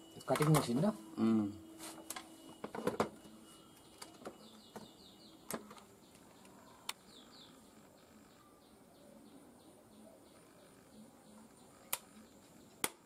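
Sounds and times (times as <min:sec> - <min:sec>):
sharp plastic clicks: 0:12.8 - 0:13.0.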